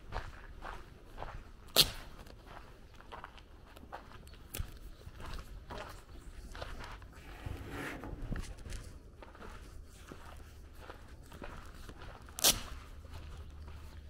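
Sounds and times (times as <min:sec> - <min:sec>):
footsteps on gravel: 0:00.1 - 0:14.0.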